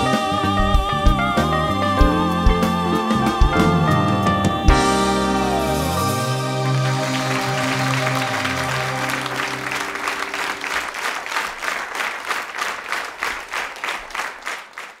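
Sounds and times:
band holding final chord: 0:01.5 - 0:11.1
audience applauding: 0:05.1 - 0:15.0.

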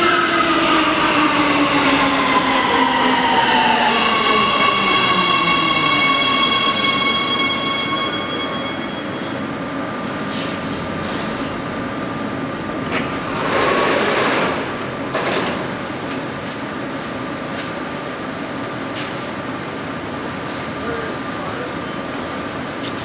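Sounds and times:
train braking: 0:00.0 - 0:11.5
sliding doors clicking open: 0:12.9 - 0:15.8.

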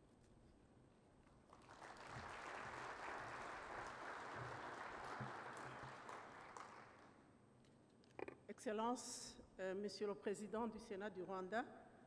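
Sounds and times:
audience applauding: 0:01.5 - 0:07.1.

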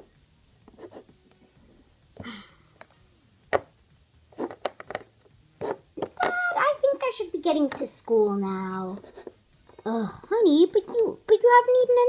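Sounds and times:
plastic toys tapping on wood: 0:03.5 - 0:03.7, 0:04.4 - 0:06.5, 0:07.6 - 0:07.9.

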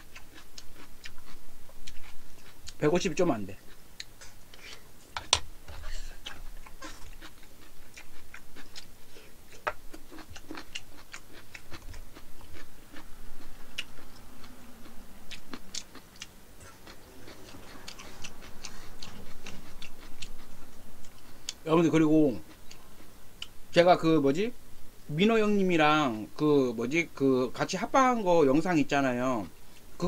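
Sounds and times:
chewing and mouth smacks: 0:00.0 - 0:02.8, 0:03.6 - 0:21.6, 0:22.4 - 0:23.6.

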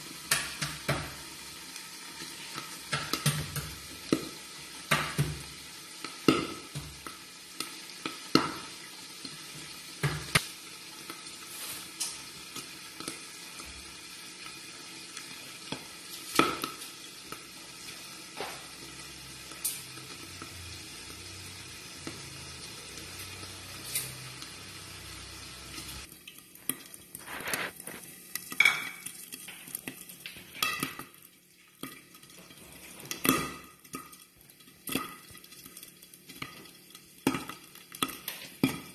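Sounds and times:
pork sizzling in a pan: 0:00.0 - 0:38.9.

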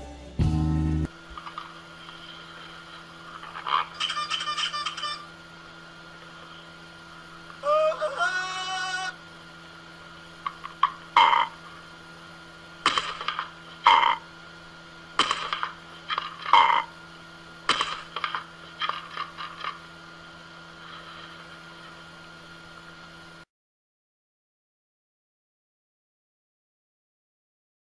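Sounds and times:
steady low hum: 0:00.0 - 0:23.5
parrot squawking: 0:03.8 - 0:05.3.

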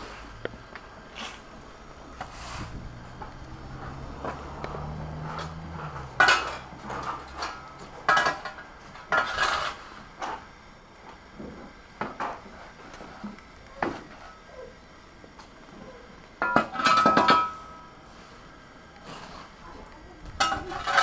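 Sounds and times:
shovel scraping paving slabs: 0:01.1 - 0:01.5, 0:02.2 - 0:02.8, 0:05.2 - 0:10.1, 0:20.6 - 0:21.0.

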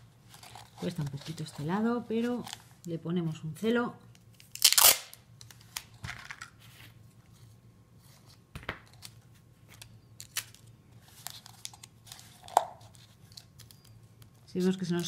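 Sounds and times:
packing tape crinkling: 0:04.3 - 0:06.5, 0:08.9 - 0:14.4.

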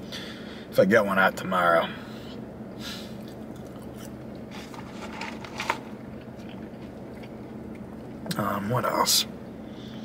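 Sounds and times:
person chewing fries: 0:03.1 - 0:08.2.

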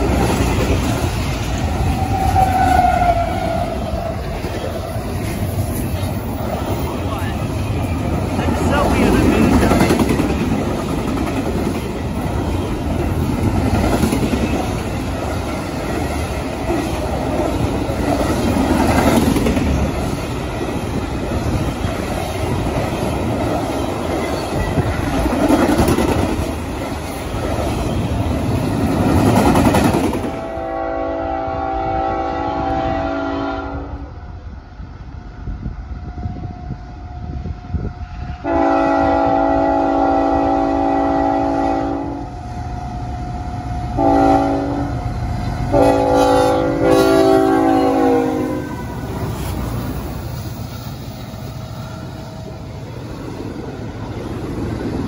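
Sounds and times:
train passing with rail clatter: 0:00.0 - 0:55.0
distant locomotive horn: 0:01.9 - 0:04.2, 0:30.4 - 0:34.2, 0:36.2 - 0:49.1.

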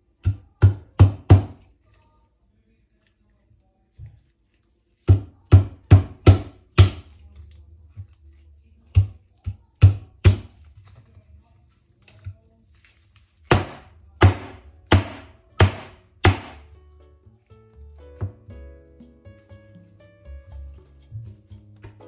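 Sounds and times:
knife chopping on cutting board: 0:00.2 - 0:01.6, 0:05.0 - 0:07.2, 0:08.9 - 0:10.6, 0:13.5 - 0:16.7.

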